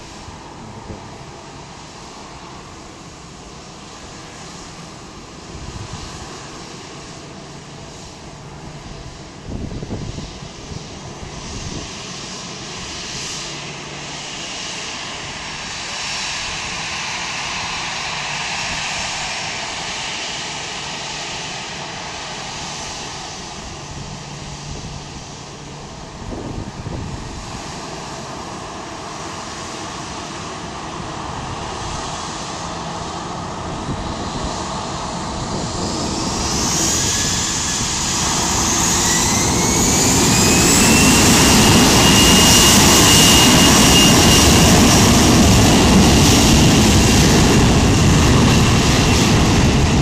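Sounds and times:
wind rumble on microphone: 0:00.0 - 0:01.7, 0:05.4 - 0:06.8, 0:08.4 - 0:13.2, 0:22.9 - 0:28.4, 0:30.7 - 0:50.0
jet engines whining: 0:00.0 - 0:50.0.

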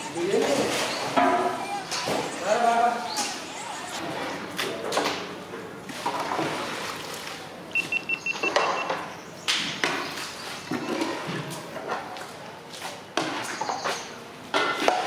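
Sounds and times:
short high electronic beeps: 0:07.8 - 0:08.6.

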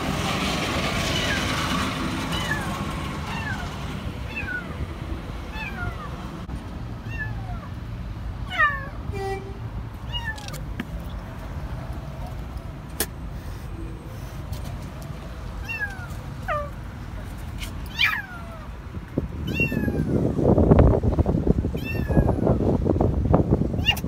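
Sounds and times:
kitten meowing in distress: 0:08.5 - 0:10.6, 0:19.5 - 0:20.2, 0:21.8 - 0:22.5, 0:23.8 - 0:24.0.

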